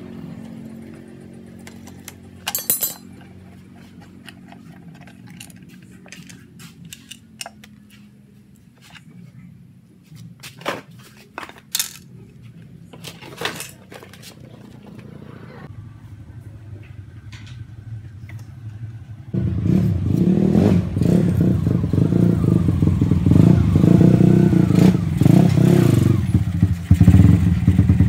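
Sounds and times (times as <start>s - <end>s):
metallic clinks of tools: 1.7s - 3.1s.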